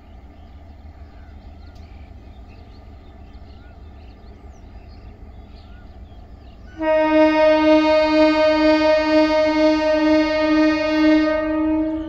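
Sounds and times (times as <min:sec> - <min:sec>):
train horn blast: 0:06.8 - 0:12.0.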